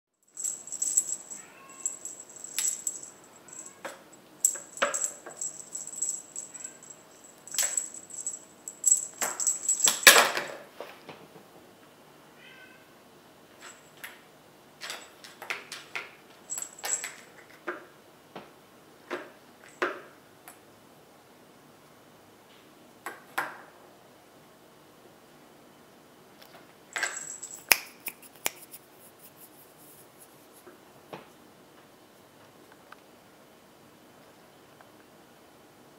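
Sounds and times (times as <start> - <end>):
light jingling: 0.2 - 10.5, 16.5 - 17.4, 27.0 - 28.5
plastic balls clicking and rattling: 0.3 - 10.3
kitten meowing faintly: 1.3 - 2.1, 3.4 - 4.1, 12.3 - 13.0.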